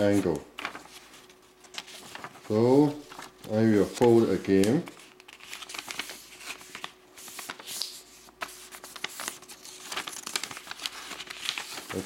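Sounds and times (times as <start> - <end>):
paper rustling and crackling: 0.0 - 12.0.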